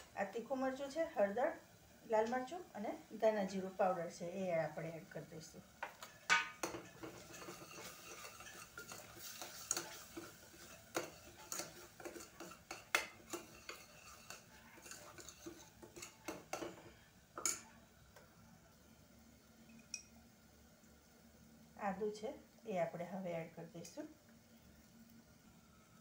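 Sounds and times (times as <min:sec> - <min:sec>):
spoon scraping a metal pot: 0:05.8 - 0:16.8.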